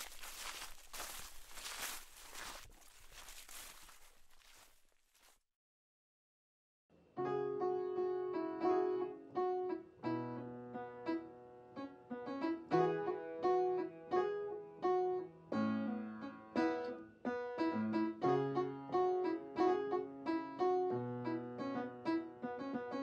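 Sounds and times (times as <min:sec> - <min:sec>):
piano playing: 0:07.2 - 0:23.0.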